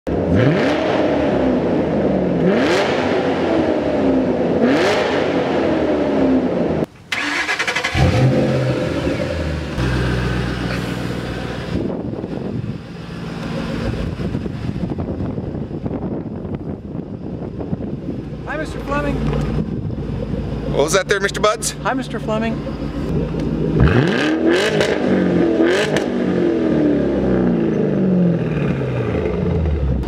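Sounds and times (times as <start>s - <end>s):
car engine accelerating: 0.1s - 30.0s
engine starting up: 7.1s - 9.3s
engine idling: 17.8s - 24.2s.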